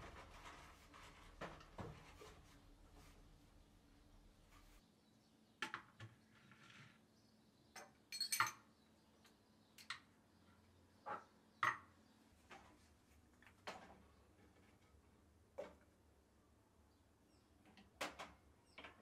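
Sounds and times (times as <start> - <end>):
glass jars clinking on wood: 8.1 - 8.7.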